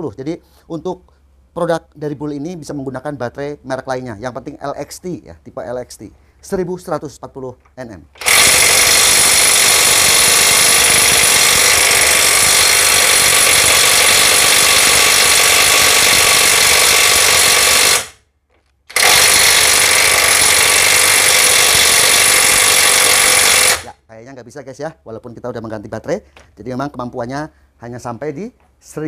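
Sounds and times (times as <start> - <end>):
impact wrench hammering: 8.2 - 18.2, 18.9 - 23.9.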